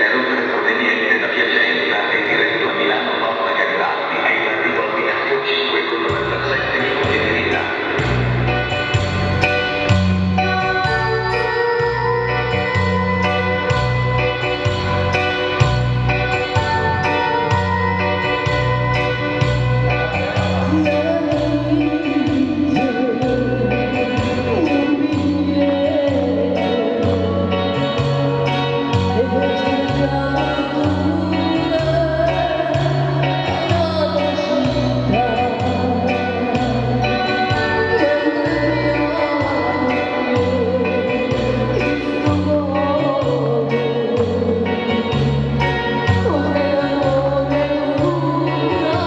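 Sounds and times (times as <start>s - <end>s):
live backing music: 0.0s - 49.0s
instrumental accompaniment: 5.4s - 49.0s
woman singing: 10.4s - 49.0s.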